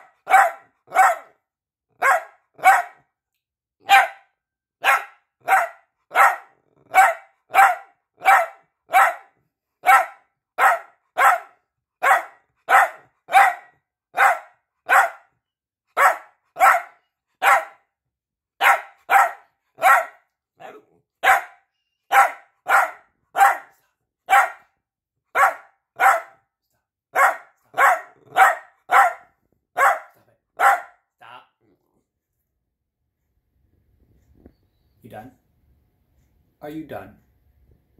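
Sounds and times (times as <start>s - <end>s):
dog barking: 0.0s - 1.4s, 2.0s - 3.1s, 3.8s - 15.3s, 15.9s - 17.9s, 18.6s - 20.3s, 21.2s - 24.7s, 25.3s - 26.4s, 27.1s - 31.0s.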